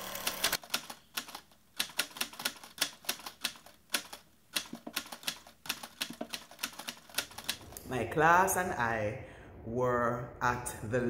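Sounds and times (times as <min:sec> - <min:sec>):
typewriter keys clacking: 0:00.0 - 0:07.7.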